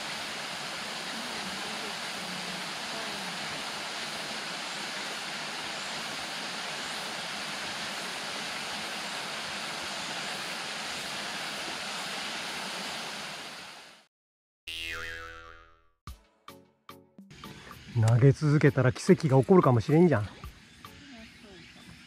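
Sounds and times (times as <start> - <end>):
waterfall splashing into pool: 0.0 - 14.1
cartoon falling tone effect: 14.7 - 16.0.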